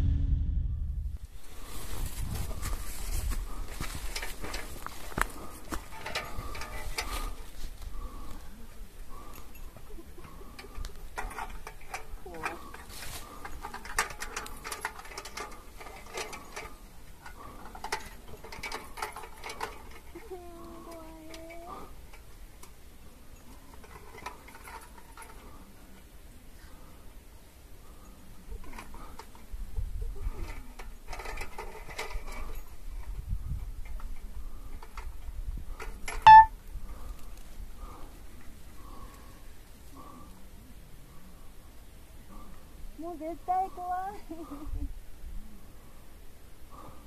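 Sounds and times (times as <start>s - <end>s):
wind and handling rumble: 0.0s - 47.0s
high-pitched squeak: 36.2s - 36.5s.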